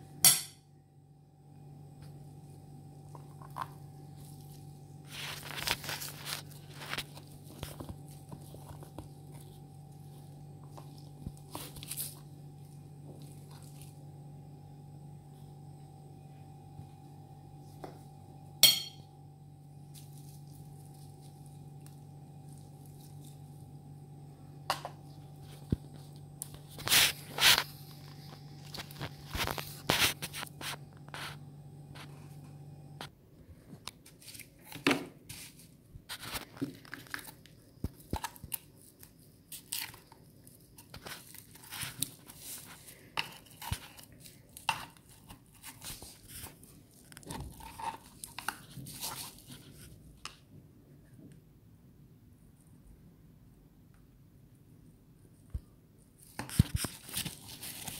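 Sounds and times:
low hum: 0.0 - 33.8.

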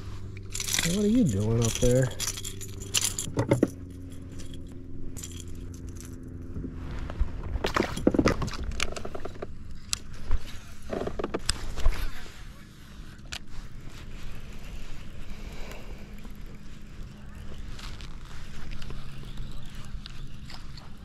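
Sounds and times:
steady low hum: 0.0 - 21.0
small metal items jangling: 0.4 - 6.4.

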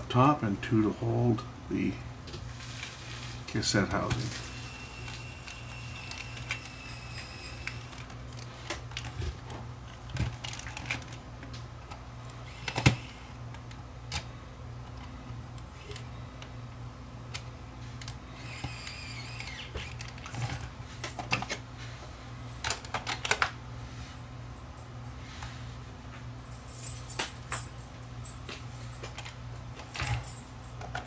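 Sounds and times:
electric screwdriver whirring: 4.3 - 8.1, 12.4 - 13.3, 18.3 - 20.3.

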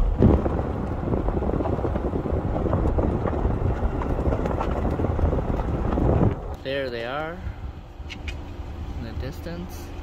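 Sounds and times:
tyres crunching on gravel: 0.0 - 7.4
wind rushing over microphone: 0.0 - 10.0.

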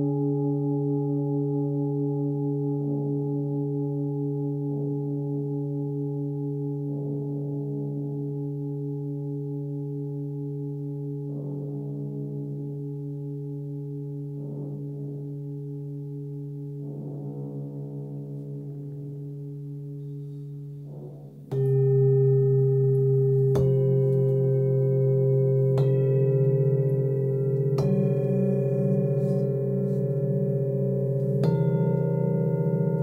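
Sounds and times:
singing bowl humming: 17.8 - 33.0
singing bowl strikes: 19.4 - 33.0.

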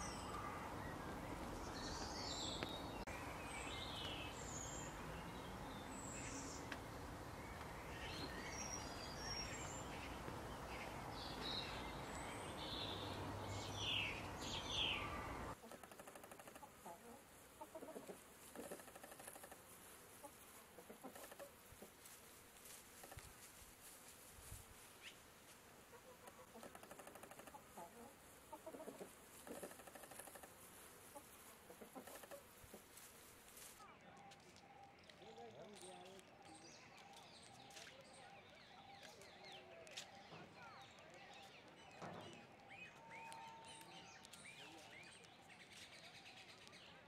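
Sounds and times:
wild birds chirping: 0.0 - 23.4, 24.9 - 47.0
hen clucking: 15.5 - 22.0, 25.9 - 32.9.

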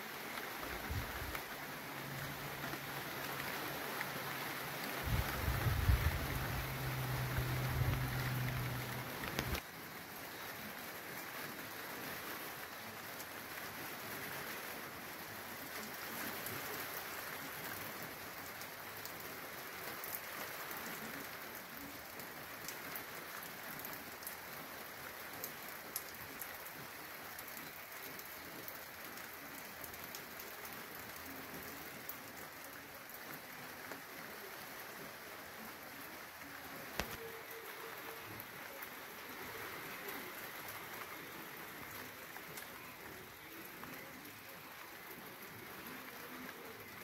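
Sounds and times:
rain falling: 0.0 - 47.0
raindrops ticking: 0.1 - 9.8, 21.6 - 33.3, 36.9 - 47.0.

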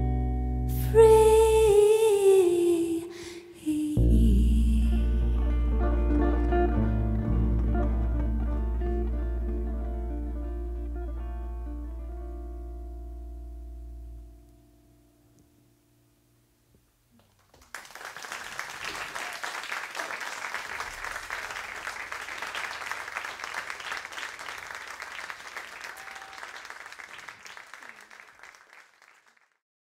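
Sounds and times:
audience applauding: 5.8 - 9.7, 17.2 - 29.6.

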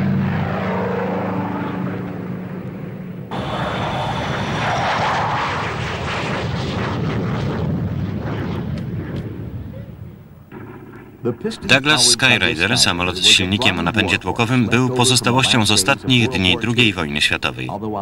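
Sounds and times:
jet launching roar: 0.0 - 17.0
propeller plane engine droning: 0.0 - 18.0.

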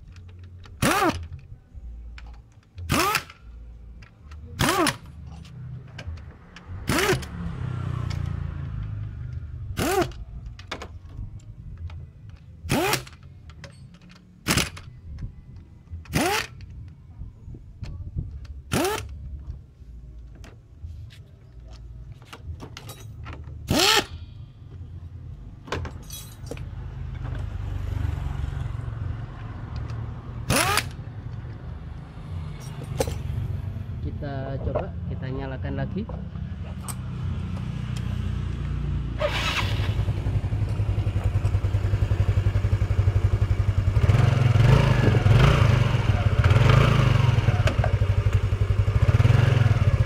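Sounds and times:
pneumatic impact wrench bursts: 0.8 - 1.3, 2.9 - 3.4, 4.6 - 5.2, 6.8 - 7.3, 9.7 - 10.2, 12.7 - 13.2, 14.4 - 14.8, 16.1 - 16.6, 18.7 - 19.2, 23.6 - 24.3, 30.4 - 31.0.

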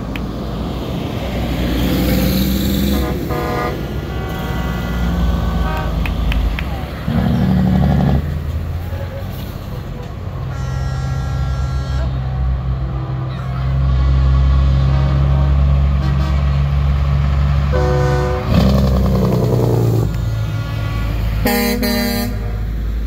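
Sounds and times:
diesel truck engines droning: 0.0 - 23.0
truck horns: 2.5 - 22.8
air horn blast: 2.8 - 6.1, 10.5 - 12.2, 14.9 - 16.6, 17.7 - 18.7, 21.4 - 22.6.

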